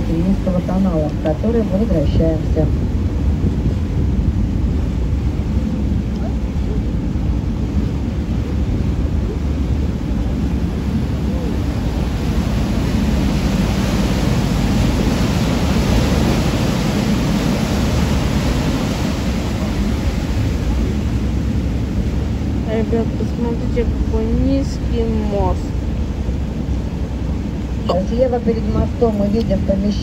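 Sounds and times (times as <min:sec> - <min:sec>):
boat engine rumble: 0:00.0 - 0:30.0
rushing water wash: 0:00.0 - 0:30.0.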